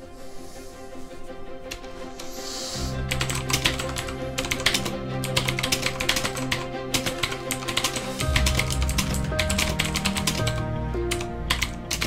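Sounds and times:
background music: 0.0s - 12.0s
mechanical keyboard typing: 3.1s - 12.0s.

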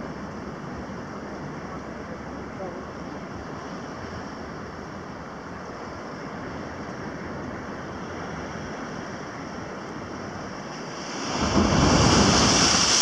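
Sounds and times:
wind: 0.0s - 13.0s
sea surf on rocks: 2.9s - 13.0s.

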